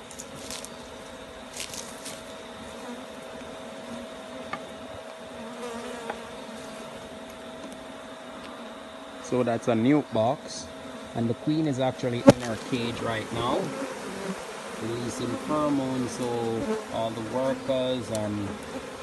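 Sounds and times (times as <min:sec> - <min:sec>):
honeybees buzzing: 0:00.0 - 0:19.0
light knocks on hive box: 0:12.2 - 0:12.6.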